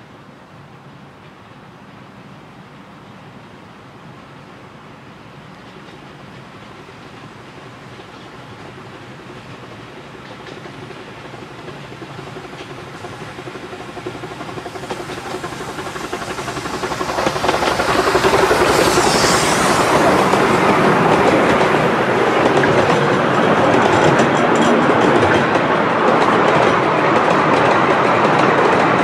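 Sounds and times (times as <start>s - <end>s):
steam hiss: 5.4s - 24.9s
miniature steam locomotive running: 5.6s - 29.0s
wheels clattering over rail joints: 5.6s - 29.0s.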